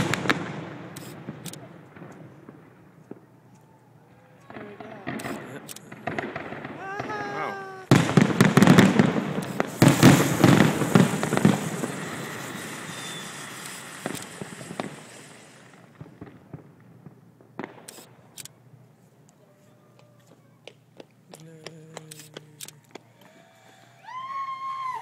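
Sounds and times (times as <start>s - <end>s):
firework bang: 0.0s - 3.3s, 4.5s - 18.2s
firework crackling pops: 0.0s - 3.8s, 4.4s - 18.6s.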